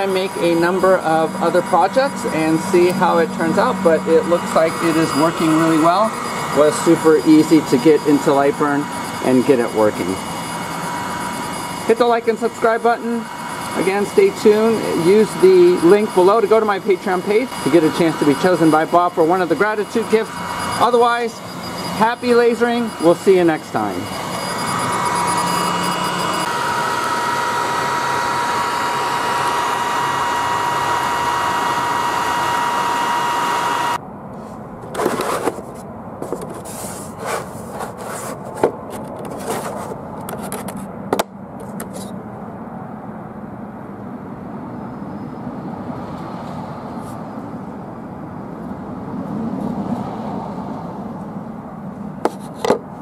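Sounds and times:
laser engraver whirr and whine: 0:00.0 - 0:34.0.

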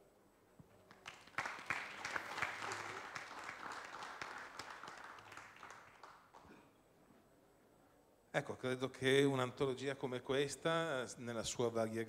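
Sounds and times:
audience applause: 0:00.9 - 0:06.4.

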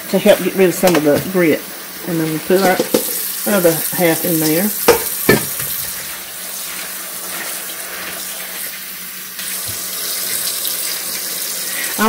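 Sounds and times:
tap running into a sink: 0:00.8 - 0:01.4, 0:02.5 - 0:06.1, 0:09.4 - 0:12.0.

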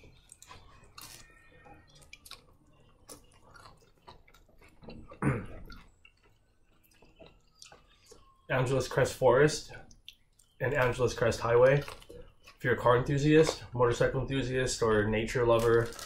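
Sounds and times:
person chewing: 0:00.0 - 0:08.5, 0:09.8 - 0:10.6, 0:11.8 - 0:12.7.

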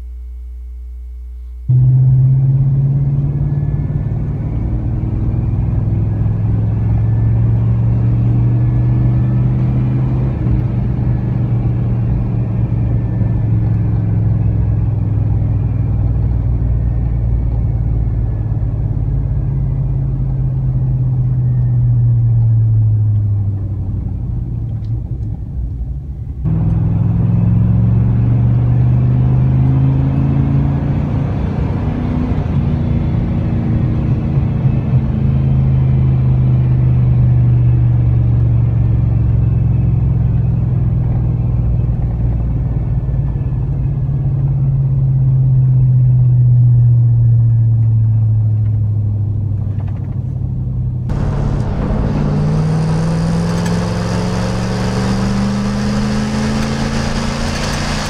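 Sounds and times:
truck exhaust drone: 0:00.0 - 0:24.6, 0:50.6 - 0:58.0.

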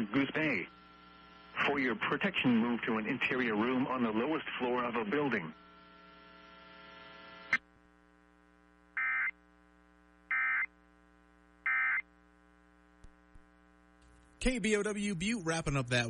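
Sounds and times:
faint radio hiss: 0:00.0 - 0:16.0
steady low hum: 0:00.0 - 0:16.0
buzzy data tones: 0:09.0 - 0:10.8, 0:11.6 - 0:12.2.

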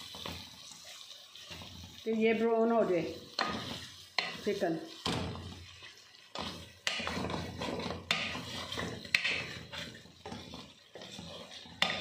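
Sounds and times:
spatula scraping food in a pan: 0:00.0 - 0:12.0
spatula knocking against pan: 0:06.4 - 0:09.6.

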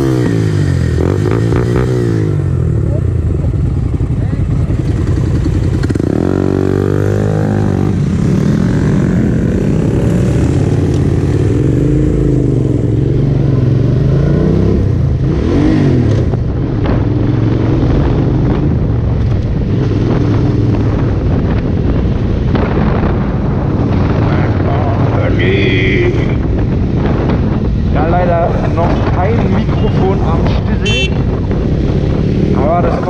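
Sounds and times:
motorcycle engine revving: 0:00.0 - 0:33.0.

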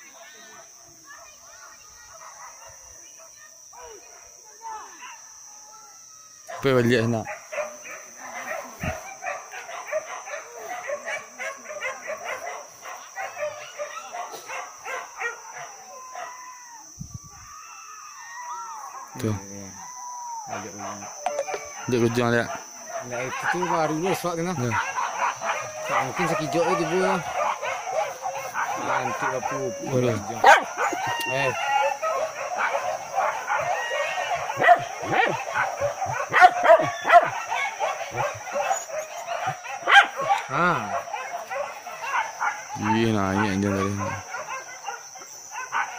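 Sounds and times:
dogs barking and yelping: 0:00.0 - 0:04.4, 0:06.4 - 0:16.6, 0:18.3 - 0:19.2, 0:19.8 - 0:45.9.

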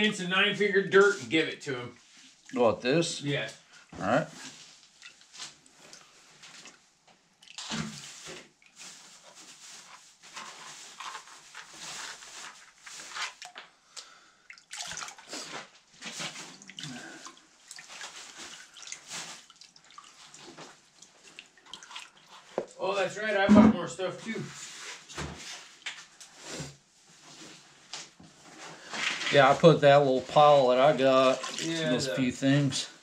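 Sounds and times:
water sloshing in pan: 0:16.2 - 0:22.8, 0:31.2 - 0:31.8.

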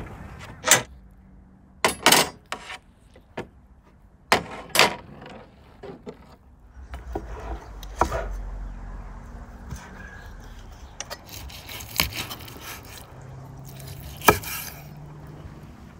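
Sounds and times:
metal skewers scraping on wood: 0:02.2 - 0:03.3, 0:04.3 - 0:08.5, 0:09.7 - 0:15.0.

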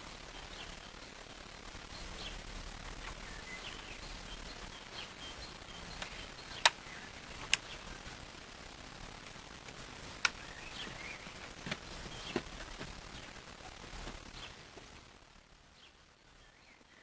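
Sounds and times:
birds chirping faintly: 0:00.0 - 0:17.0
sharp plastic clicks: 0:06.0 - 0:07.8, 0:09.7 - 0:10.4.

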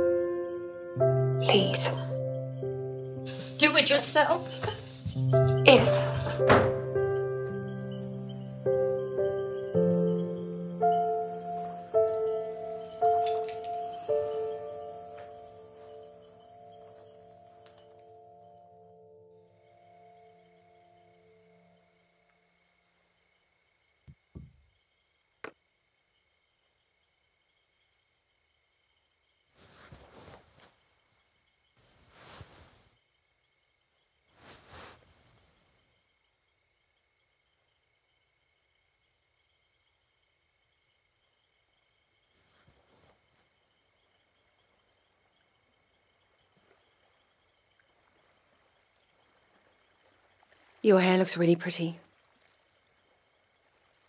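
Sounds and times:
soft sustained musical chord: 0:00.0 - 0:22.2
crickets chirping: 0:00.0 - 0:54.0
glass set down on wooden table: 0:06.0 - 0:06.8, 0:24.1 - 0:24.6
soft thumps: 0:24.1 - 0:24.6
soft rustles: 0:29.5 - 0:33.0, 0:34.3 - 0:35.9, 0:42.3 - 0:43.6.

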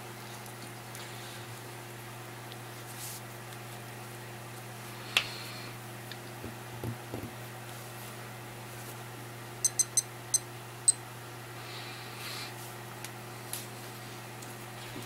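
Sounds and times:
digital watch beeping: 0:09.6 - 0:11.0.

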